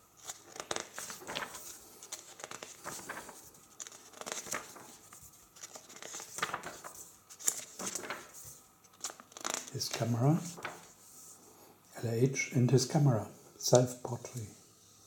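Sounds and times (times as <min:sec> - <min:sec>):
book pages turning: 0:00.2 - 0:11.1.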